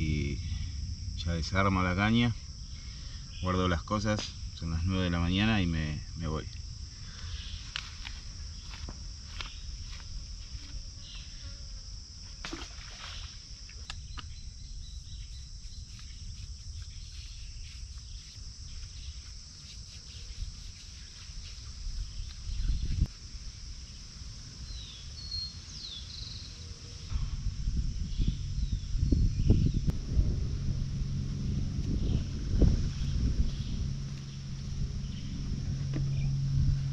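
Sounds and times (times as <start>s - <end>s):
low rumble: 0.0s - 8.7s, 27.1s - 36.9s
insects chorus: 0.0s - 36.9s
loud thump: 27.1s - 36.8s.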